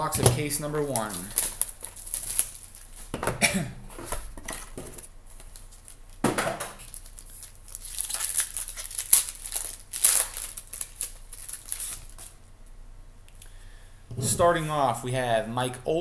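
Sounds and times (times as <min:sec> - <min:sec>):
foil pack crinkling and tearing: 0:00.8 - 0:03.1, 0:06.8 - 0:12.4.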